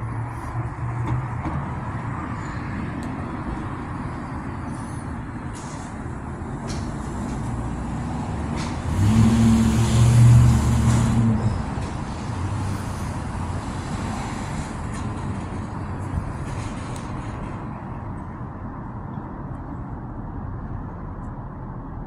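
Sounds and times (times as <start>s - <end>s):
heavy vehicle passing: 0.0s - 18.0s
low rumble of road traffic: 0.0s - 22.0s.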